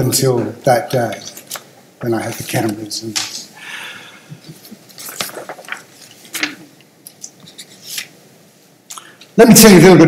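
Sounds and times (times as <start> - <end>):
paper rustling and shuffling: 4.6 - 8.1.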